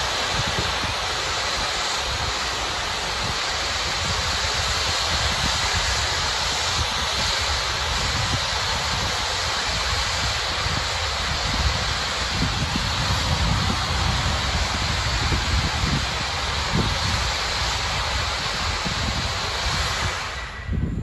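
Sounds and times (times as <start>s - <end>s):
loud hiss of gas venting: 0.0s - 21.0s
wind rumbling on microphone: 0.0s - 21.0s.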